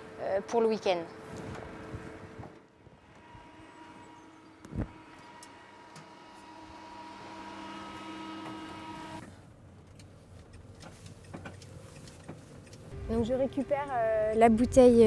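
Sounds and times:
mechanical hum with held tones: 0.0 - 9.3, 12.9 - 15.0
van driving low rumble: 0.0 - 15.0.

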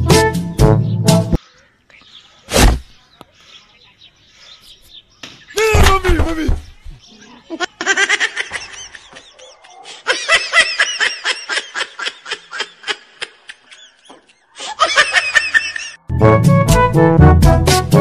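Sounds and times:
person laughing: 7.5 - 16.0.

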